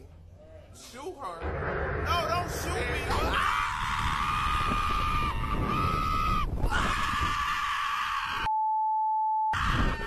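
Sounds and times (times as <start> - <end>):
steady low rumble: 1.4 - 5.3
women screaming: 3.1 - 8.5.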